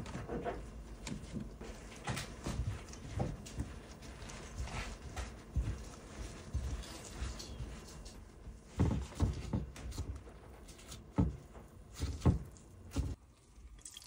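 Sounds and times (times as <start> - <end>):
hand kneading dough in bowl: 0.0 - 13.7
flour rustling: 1.5 - 13.2.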